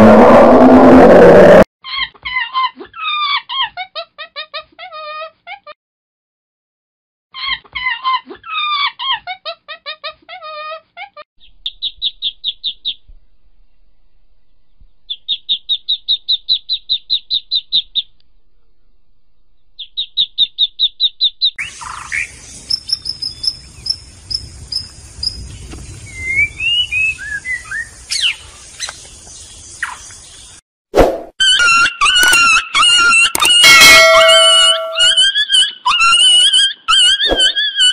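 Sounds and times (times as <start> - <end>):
small birds chirping and whistling: 19.8 - 30.6.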